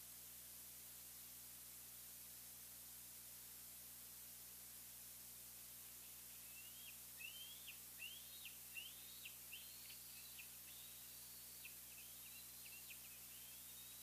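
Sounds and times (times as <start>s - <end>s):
eagle calling high whistled notes: 6.4s - 14.0s.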